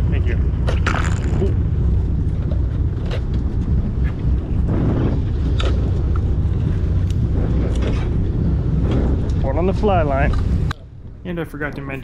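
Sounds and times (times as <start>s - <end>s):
boat engine drone: 0.0s - 12.0s
water noise: 0.0s - 12.0s
wind: 0.0s - 12.0s.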